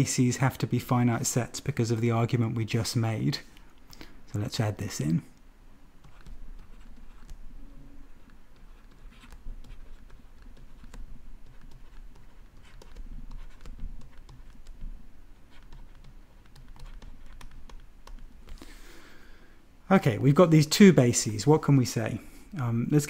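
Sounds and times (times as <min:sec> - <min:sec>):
stylus tapping and scratching on screen: 0:04.8 - 0:18.8.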